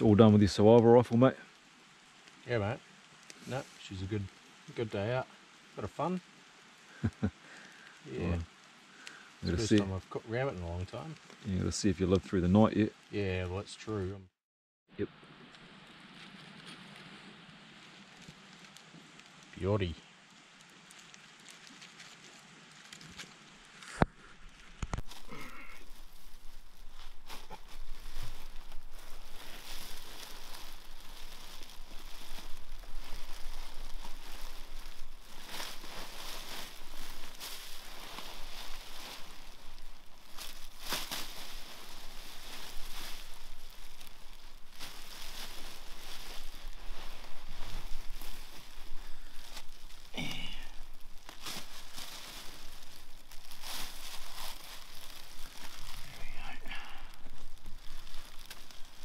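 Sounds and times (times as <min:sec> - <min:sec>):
foil bag crinkling and rustling: 0:20.5 - 0:59.0.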